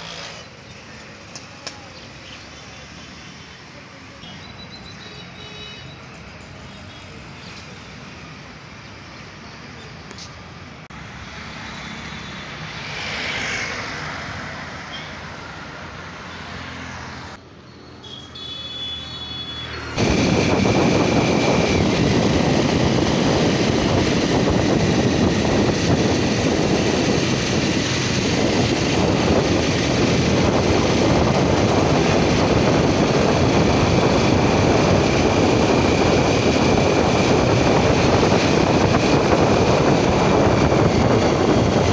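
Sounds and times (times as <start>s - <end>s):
street traffic: 0.0s - 41.9s
scooter passing: 11.0s - 17.4s
motorcycle engine: 19.7s - 41.9s
wind rush on microphone: 20.0s - 41.9s.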